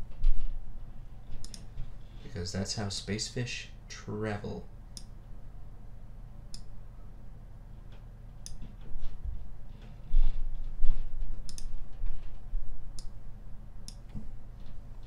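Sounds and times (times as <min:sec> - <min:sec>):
computer mouse clicking: 0:01.4 - 0:01.7, 0:11.5 - 0:11.7.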